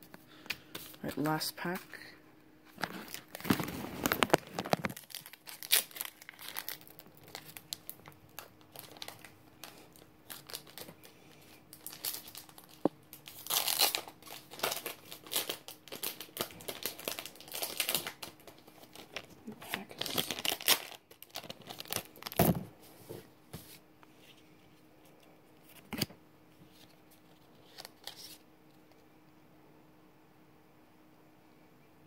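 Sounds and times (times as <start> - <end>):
wrapper and cards rustling: 2.7 - 24.4
foil pack tearing and crinkling: 2.8 - 22.6.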